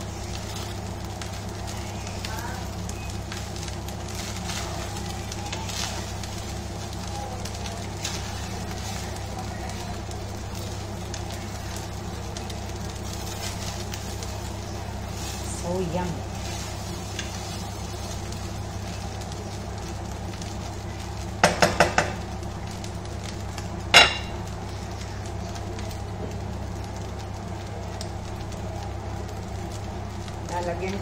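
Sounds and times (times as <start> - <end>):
spatula stirring rice in a wok: 0.0 - 30.5
steady low hum: 0.0 - 31.0
spatula tapping wok: 21.4 - 22.3, 23.9 - 24.4.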